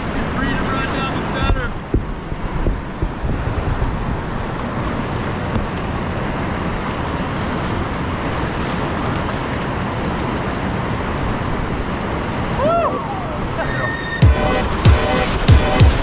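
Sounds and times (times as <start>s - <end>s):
whitewater rapids rushing: 0.0s - 16.0s.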